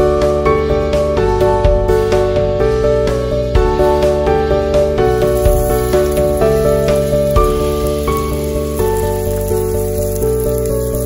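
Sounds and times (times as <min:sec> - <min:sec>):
background music sustained notes: 0:00.0 - 0:11.0
onions sizzling in oil: 0:05.0 - 0:11.0.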